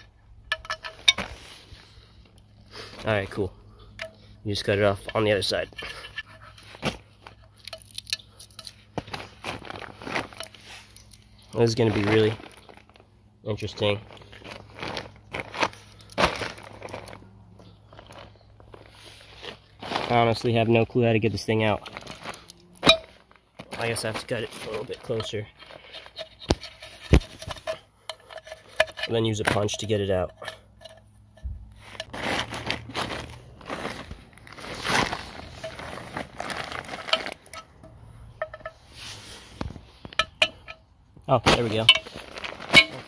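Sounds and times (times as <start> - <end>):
tools clicking and knocking: 0.0 - 1.3, 40.0 - 40.9
plastic tarp crinkling: 9.0 - 10.8, 11.6 - 17.3, 17.9 - 25.9, 31.8 - 37.6, 41.3 - 43.0
metal knocks and scrapes: 37.0 - 39.0.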